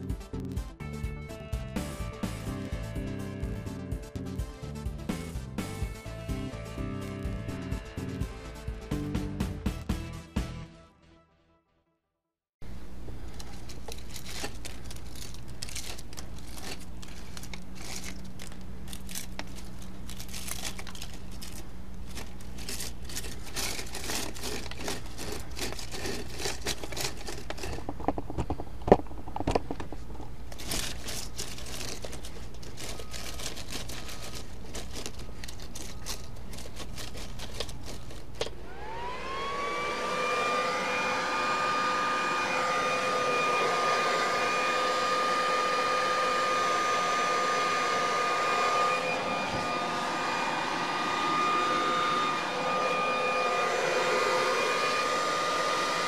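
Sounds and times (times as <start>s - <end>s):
electric leaf blower whine: 0.8s - 10.5s, 12.6s - 29.6s, 30.5s - 56.0s
dry leaves crackling and crunching: 13.3s - 27.6s, 30.5s - 38.4s.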